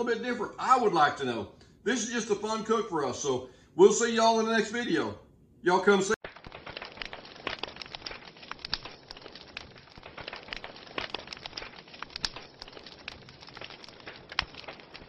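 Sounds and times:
logs crackling and popping: 6.2 - 15.0.

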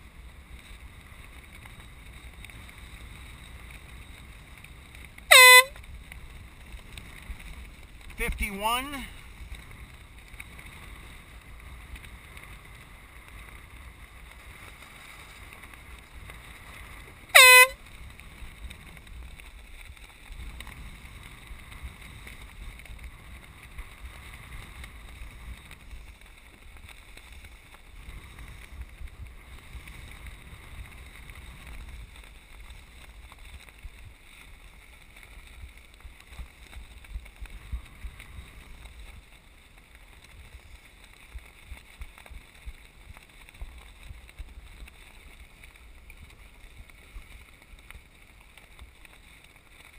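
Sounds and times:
wind noise on microphone: 0.0 - 49.8
air horn blast: 5.3 - 5.7, 17.4 - 17.8.

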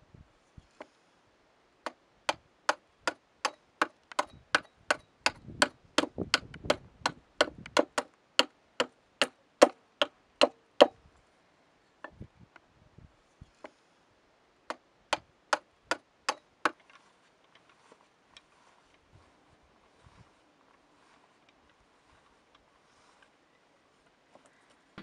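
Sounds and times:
hand tool knocking rhythmically: 7.4 - 8.1.

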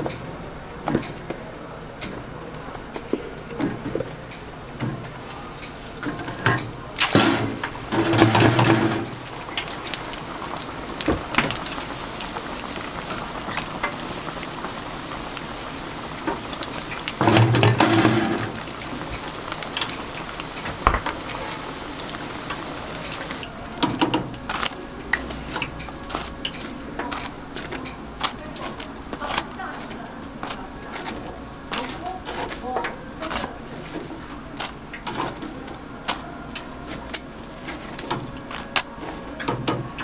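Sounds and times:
hot oil sizzling and bubbling: 4.0 - 40.0.

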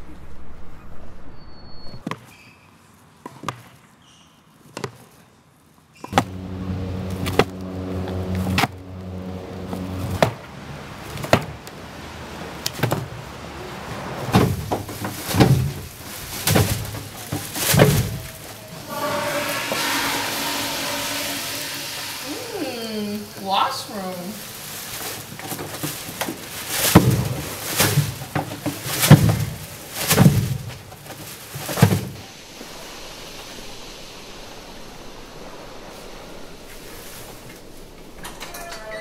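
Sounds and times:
steady low drone: 6.1 - 11.2, 16.9 - 25.0.

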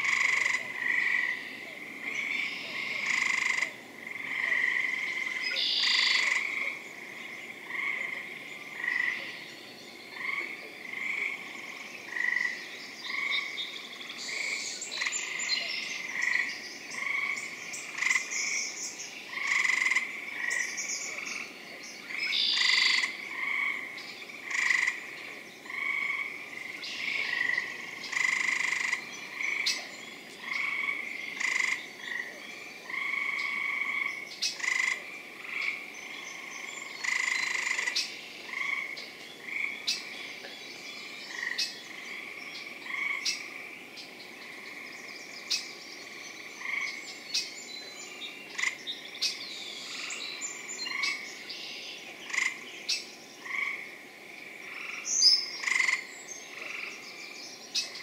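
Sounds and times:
frogs calling: 0.0 - 58.0.

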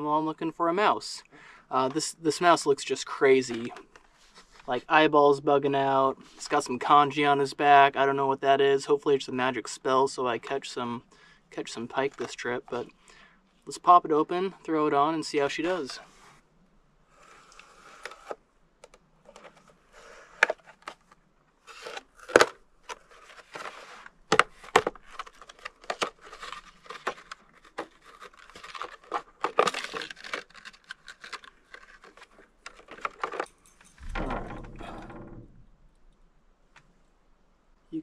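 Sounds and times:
low plastic rustle: 19.2 - 35.7
plastic packaging crinkling: 19.3 - 33.5.

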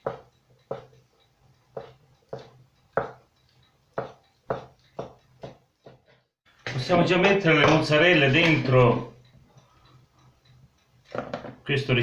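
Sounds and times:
knife knocking on wooden board: 0.0 - 1.0, 4.0 - 6.1.

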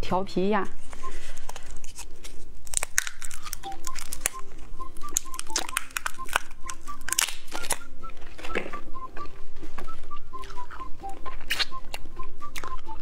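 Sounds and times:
plastic wrapper crinkling and tearing: 0.8 - 8.8.

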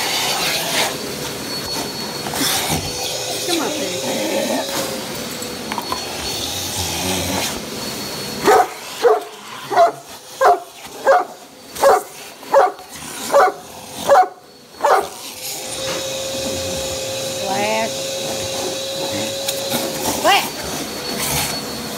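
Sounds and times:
shop vacuum whirring: 0.0 - 21.9
dog barking deeply: 8.4 - 15.1.

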